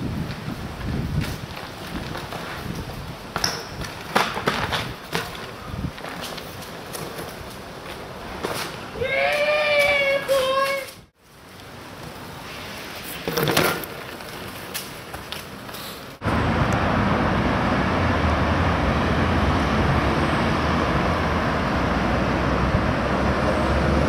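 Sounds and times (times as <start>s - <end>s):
outdoor background: 0.0s - 24.0s
loud rushing with deep rumble: 16.2s - 24.0s.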